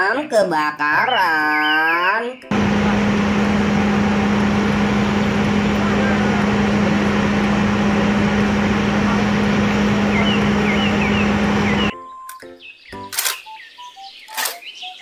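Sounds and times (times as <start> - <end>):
birds chirping: 1.1 - 15.0
fire truck engine humming: 2.5 - 11.9.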